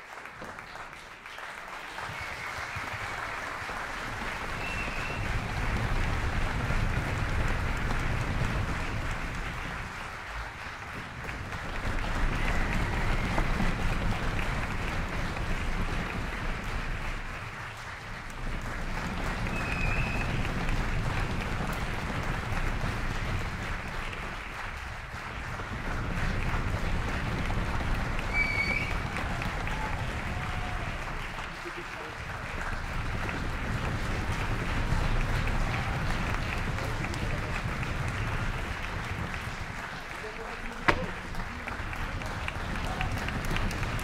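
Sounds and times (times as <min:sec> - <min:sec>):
audience applauding: 0:00.0 - 0:44.0
high whistles: 0:04.6 - 0:05.3, 0:19.5 - 0:20.3, 0:28.3 - 0:29.0.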